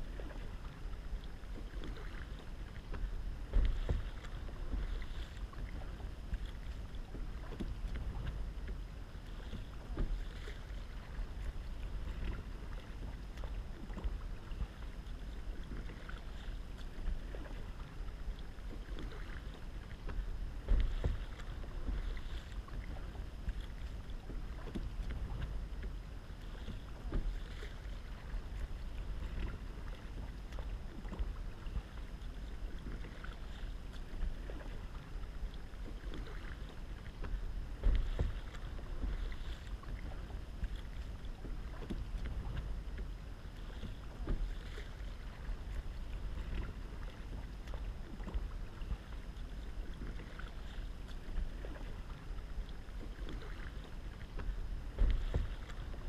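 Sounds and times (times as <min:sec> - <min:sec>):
low rumble: 0:00.0 - 0:56.0
paddle splashing in water: 0:00.0 - 0:56.0.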